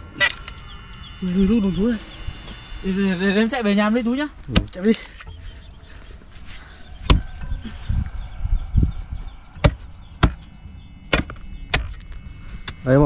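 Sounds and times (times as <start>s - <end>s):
digging tool striking wood: 4.5s - 4.8s, 9.6s - 10.5s, 11.1s - 12.0s.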